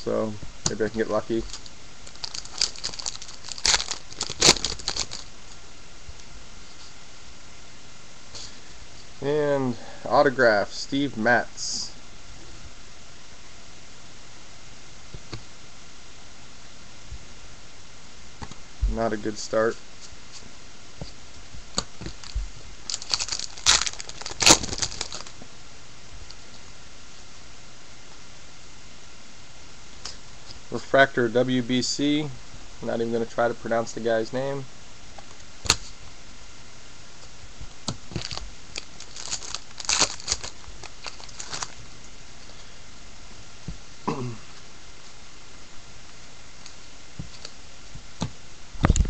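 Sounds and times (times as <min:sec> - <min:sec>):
foil wrappers crinkling: 0:00.7 - 0:05.3, 0:21.7 - 0:25.4, 0:38.1 - 0:41.8.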